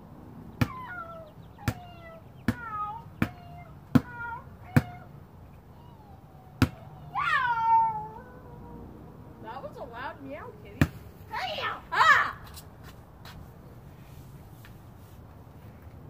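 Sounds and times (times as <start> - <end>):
basketball bouncing on concrete: 0.6 - 1.0, 1.6 - 5.1, 6.6 - 6.8, 10.7 - 11.1
child meowing: 0.7 - 5.1, 5.7 - 8.8.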